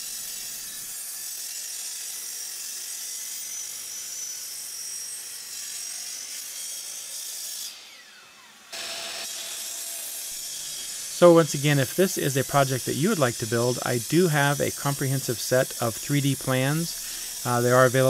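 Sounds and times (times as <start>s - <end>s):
chop saw motor whine: 0.0s - 18.0s
saw motor spinning down: 7.7s - 18.0s.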